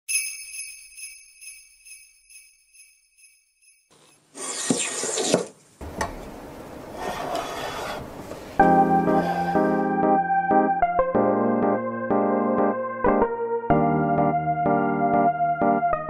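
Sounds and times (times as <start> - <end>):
high tinkling chime: 0.1 - 3.9
hand plane shaving bamboo: 4.3 - 5.5, 6.9 - 8.1.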